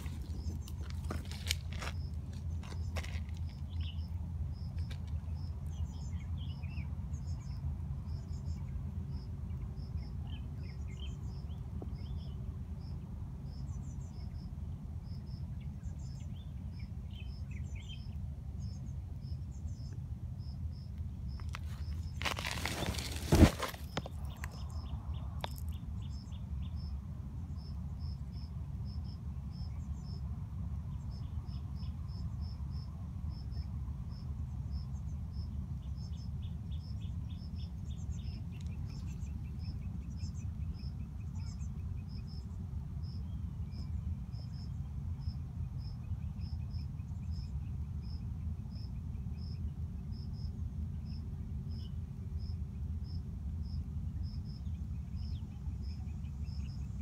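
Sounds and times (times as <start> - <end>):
insect chirping: 17.2 - 30.2.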